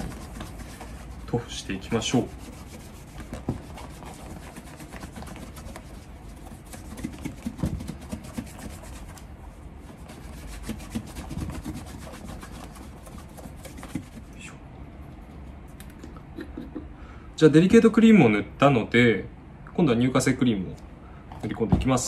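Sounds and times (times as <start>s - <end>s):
cloth scrubbing leather shoe: 0.0s - 14.4s.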